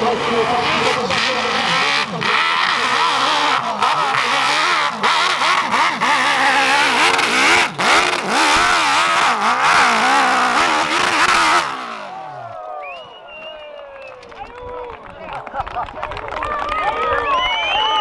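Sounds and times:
motorbike engine revving: 0.0 - 12.7.

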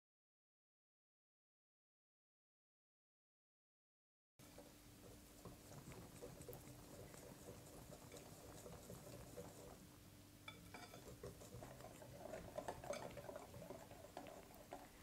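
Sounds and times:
whisk beating batter in glass bowl: 4.4 - 9.9, 10.5 - 15.0.

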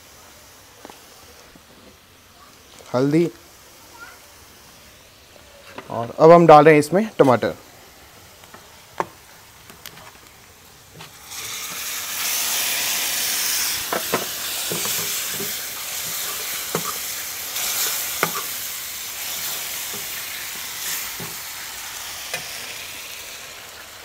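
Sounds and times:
tomatoes sizzling in hot oil: 0.0 - 24.0
ladle clinking and scraping pan: 13.9 - 18.6.

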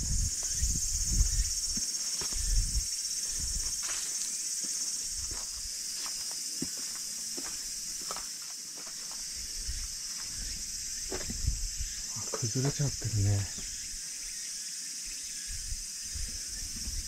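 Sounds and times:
high-pitched insect chorus: 0.0 - 17.0
footsteps through grass: 0.4 - 10.5.

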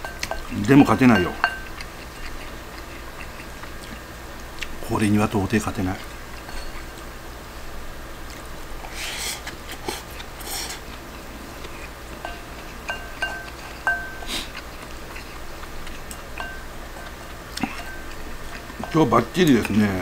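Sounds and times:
spoon clinking against bowl: 0.0 - 1.8, 6.5 - 7.0, 12.2 - 14.3, 16.3 - 19.7
eating sounds: 0.2 - 4.9, 8.2 - 20.0.

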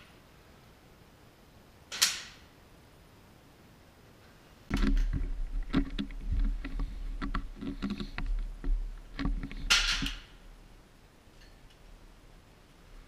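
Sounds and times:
air rifle clicks and knocks: 4.7 - 10.3.

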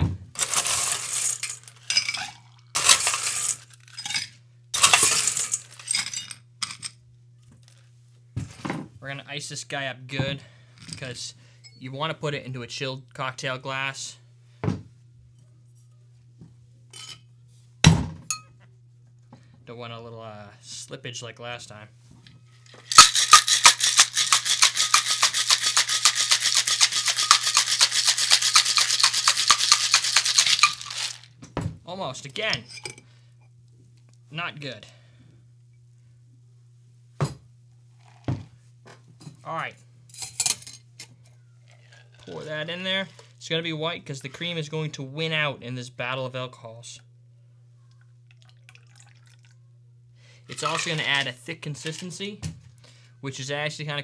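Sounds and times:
ice cubes rattling in shaker: 0.4 - 4.0, 4.8 - 6.1, 22.8 - 31.3, 50.5 - 52.0.

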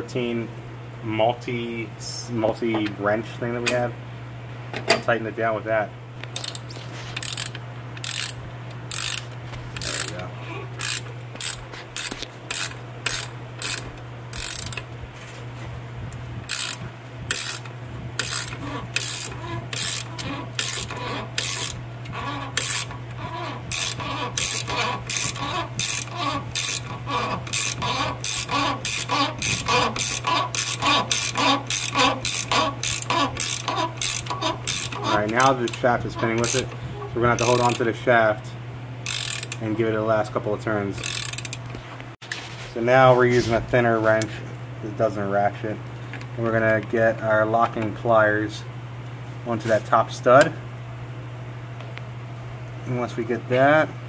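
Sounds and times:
ratchet wrench clicking: 6.3 - 6.6, 7.2 - 10.2, 10.8 - 14.8, 16.5 - 36.8, 37.4 - 37.8, 39.0 - 39.6, 41.0 - 41.6.

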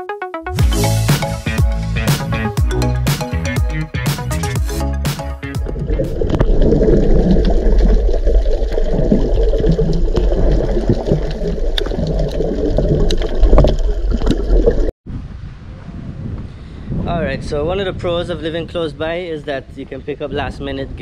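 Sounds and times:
rushing gurgling water: 5.6 - 14.9
wind noise on microphone: 13.5 - 21.0.

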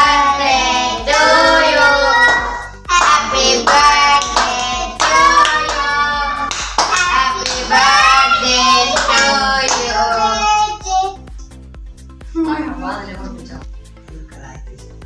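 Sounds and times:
child singing: 0.0 - 11.3
music with low beat: 0.0 - 15.0.

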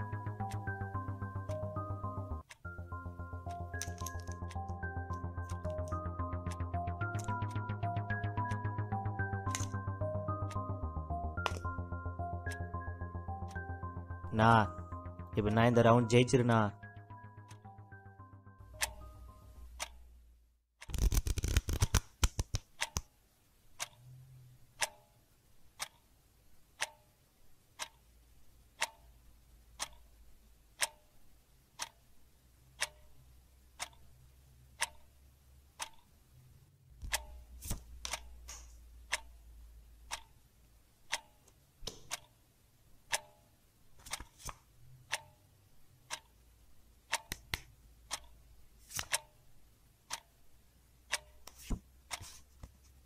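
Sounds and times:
clock ticking: 0.0 - 20.3, 22.8 - 23.1, 23.8 - 24.2, 24.8 - 25.2, 25.8 - 26.1, 26.7 - 32.1, 32.7 - 36.2, 37.0 - 40.4, 41.0 - 42.4, 43.1 - 44.3, 45.0 - 49.4, 50.0 - 50.4, 51.0 - 52.4
rapid flurry of clicks: 20.8 - 23.1.

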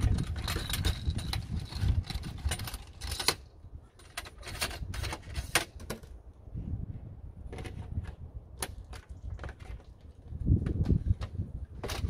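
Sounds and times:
clicks and metallic rattles of tools: 0.0 - 6.1.

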